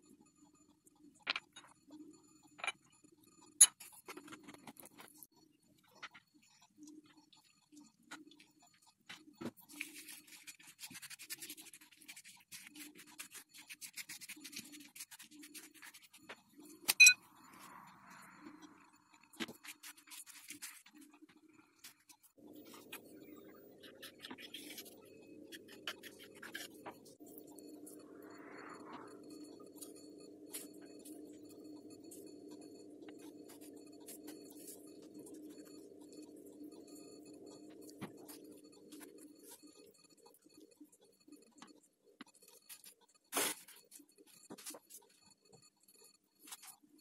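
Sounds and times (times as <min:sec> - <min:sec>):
pastry sheets rustling and crinkling: 0:09.1 - 0:16.5.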